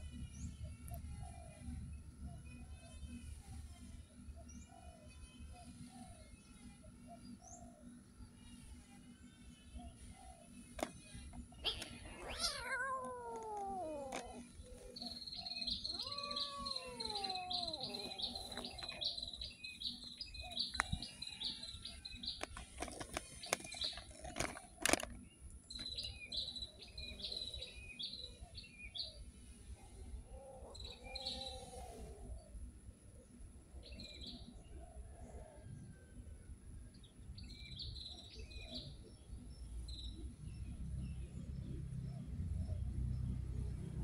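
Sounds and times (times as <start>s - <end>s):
bird chirping: 11.0s - 22.6s
cat meowing: 11.6s - 14.4s, 15.8s - 18.8s.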